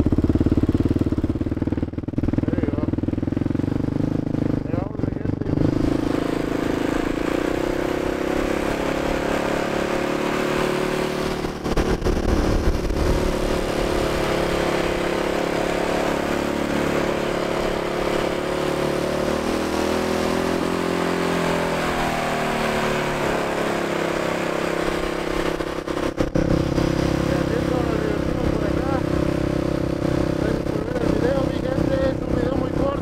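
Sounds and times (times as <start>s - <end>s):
atv engine running: 0.0s - 33.0s
rough burst of noise: 5.6s - 20.8s.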